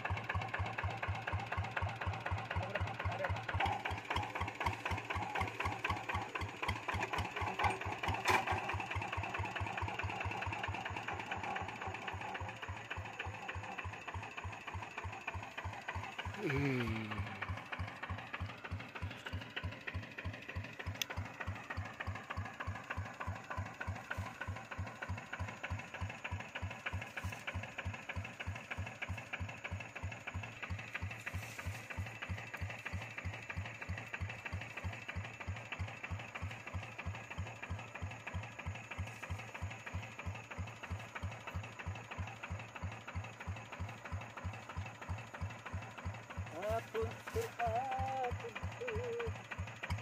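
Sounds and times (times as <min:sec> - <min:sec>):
diesel engine running: 0:00.0 - 0:50.0.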